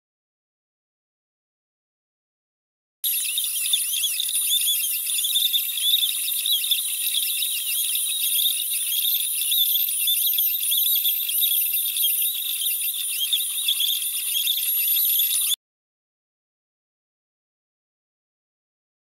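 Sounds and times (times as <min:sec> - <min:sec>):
cnc router spindle whine: 0:03.1 - 0:15.6.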